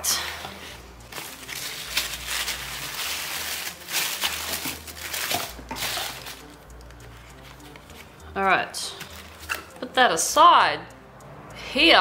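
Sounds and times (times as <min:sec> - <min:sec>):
tissue paper rustling: 0:00.2 - 0:06.4.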